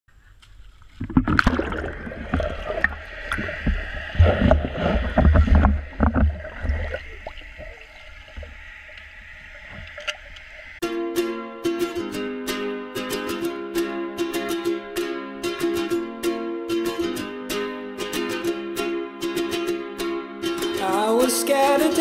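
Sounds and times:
pool water splashing: 0.4 - 10.8.

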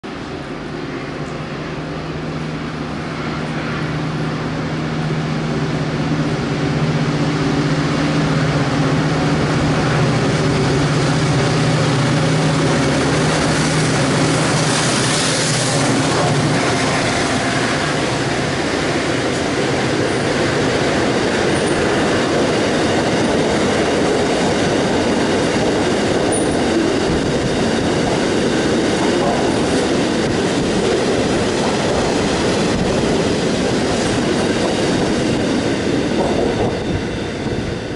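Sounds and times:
diesel locomotive engine droning: 0.0 - 37.9
train wheels clattering: 11.3 - 36.9.

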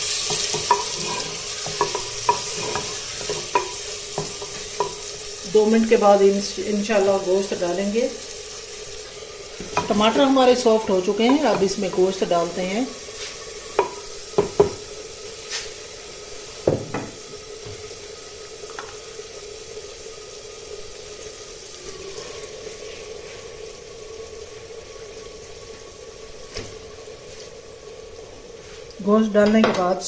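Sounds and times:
masala sizzling softly: 0.0 - 30.0
wooden spoon knocking on pot: 0.3 - 5.0, 11.2 - 12.2, 13.8 - 14.8, 16.6 - 17.2.

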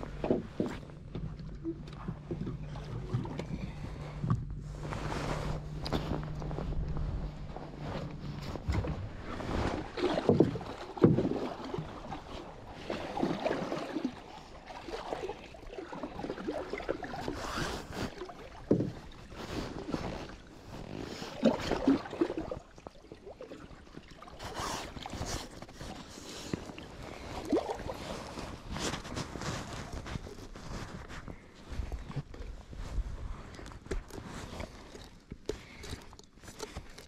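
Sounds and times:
knocks and bumps on boat: 0.0 - 4.6, 6.3 - 12.2.

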